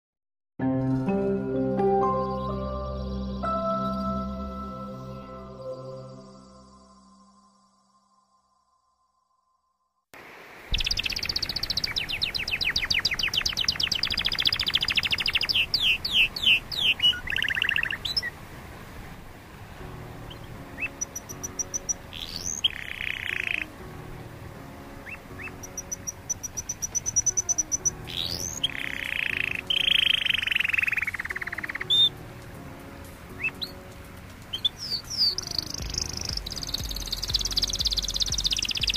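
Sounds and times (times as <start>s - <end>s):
canary singing: 10.7s - 18.3s, 20.2s - 23.8s, 24.9s - 32.2s, 33.3s - 33.9s, 34.5s - 38.9s.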